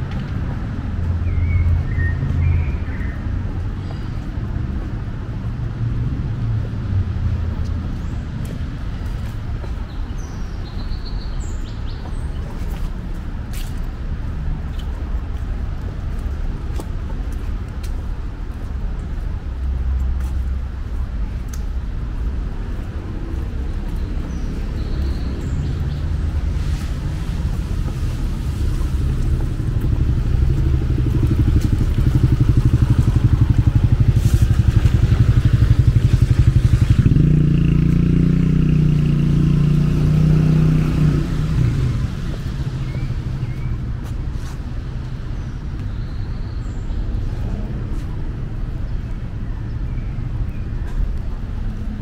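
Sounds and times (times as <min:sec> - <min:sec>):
traffic rumble: 0:00.0 - 0:52.0
light ticks: 0:21.4 - 0:21.7.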